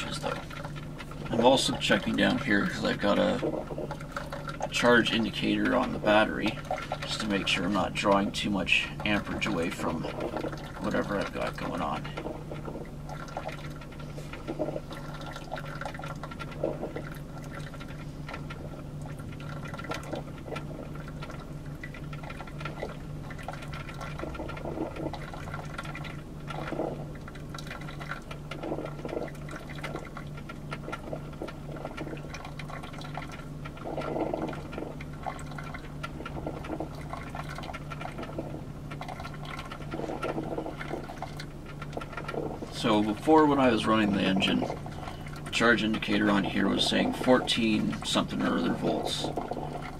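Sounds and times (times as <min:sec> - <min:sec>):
coffee maker water gurgling: 0:00.0 - 0:49.9
low hum: 0:00.0 - 0:49.9.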